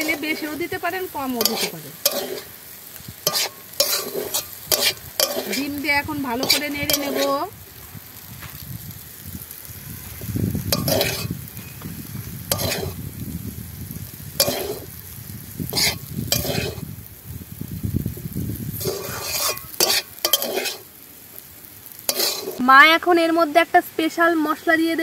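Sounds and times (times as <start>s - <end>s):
metal spatula scraping wok: 0.0s - 7.7s, 9.5s - 13.1s, 14.4s - 15.0s, 15.7s - 16.9s, 18.7s - 21.0s, 22.0s - 22.6s
frying sizzle: 0.0s - 25.0s.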